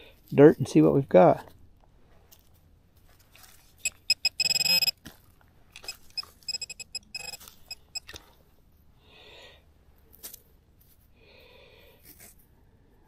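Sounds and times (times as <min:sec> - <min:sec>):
pinpointer beeping: 0:03.8 - 0:04.9, 0:05.8 - 0:08.0.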